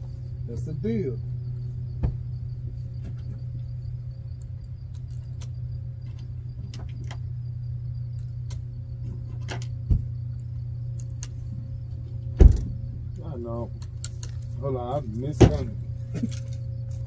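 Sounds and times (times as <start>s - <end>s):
low mechanical hum: 0.0s - 17.0s
dull thump: 1.9s - 3.4s, 9.8s - 10.2s, 12.4s - 12.9s, 15.4s - 15.8s.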